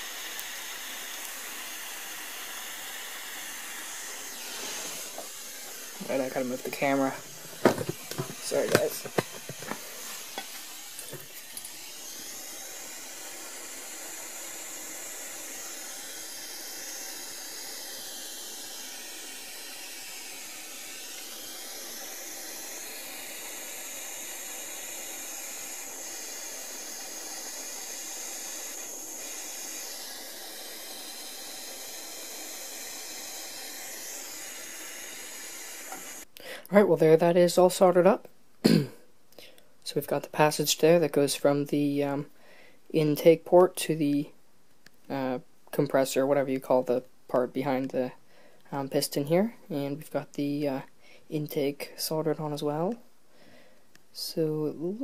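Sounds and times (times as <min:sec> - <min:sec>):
blowtorch flame hissing: 0:00.0 - 0:36.3.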